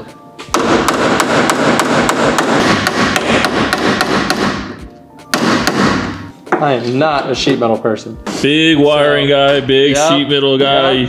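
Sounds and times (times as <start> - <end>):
hammer striking sheet metal: 0.5 - 6.3.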